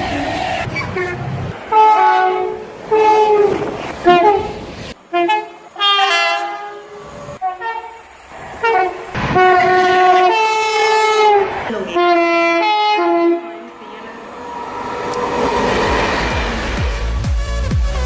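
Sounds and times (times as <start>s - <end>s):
two-note train horn blasts: 8.6s - 15.4s.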